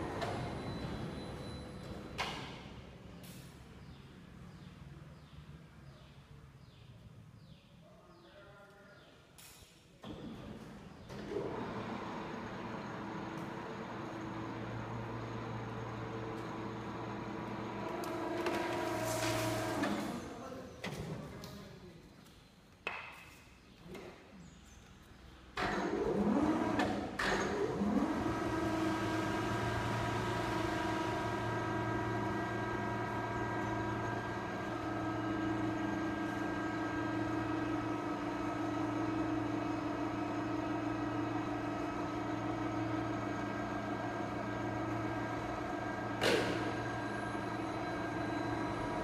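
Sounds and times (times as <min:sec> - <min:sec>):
crane hoist humming: 0:00.0 - 0:02.4, 0:11.1 - 0:20.4, 0:25.6 - 0:49.0.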